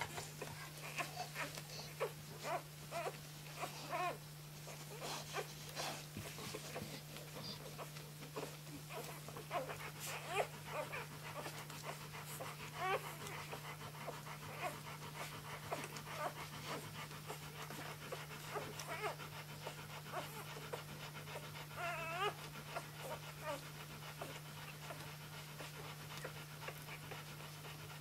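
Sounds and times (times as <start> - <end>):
puppies squeaking and whimpering: 0.1 - 28.0.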